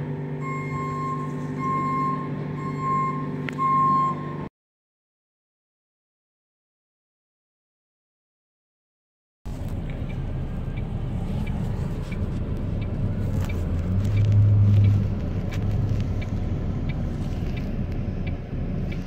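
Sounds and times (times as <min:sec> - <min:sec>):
truck diesel engine idling: 0:00.0 - 0:04.2, 0:09.5 - 0:14.2.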